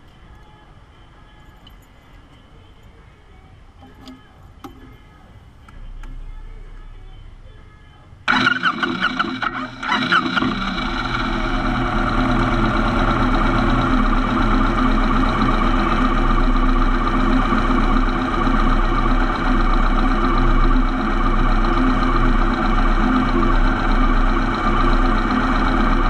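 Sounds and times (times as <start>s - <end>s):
motorcycle engine idling: 8.2s - 26.0s.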